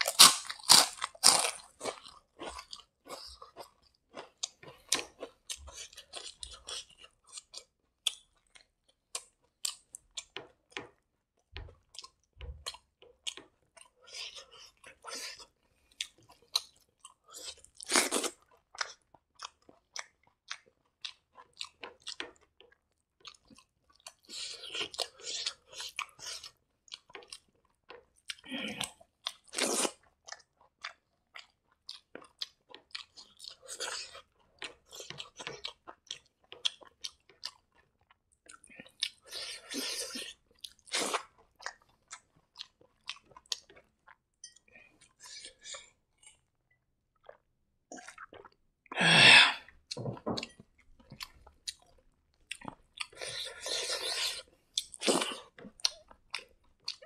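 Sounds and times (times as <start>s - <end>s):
crunchy chewing: 0.0s - 10.3s.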